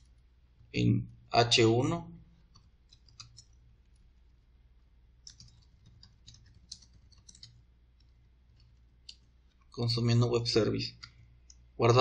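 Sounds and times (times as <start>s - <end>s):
low steady hum: 0.0s - 12.0s
keyboard typing: 2.4s - 4.5s, 5.2s - 9.8s.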